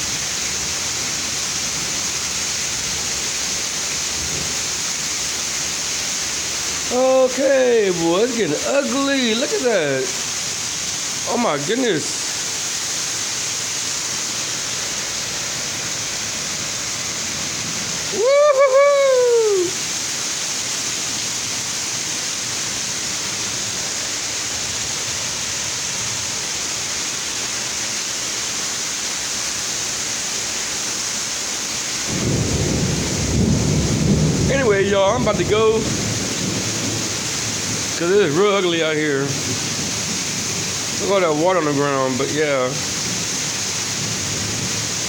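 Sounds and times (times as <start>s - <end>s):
heavy rain pouring: 0.0s - 45.0s
person exclaiming: 6.8s - 10.2s, 11.3s - 12.3s, 18.0s - 19.8s.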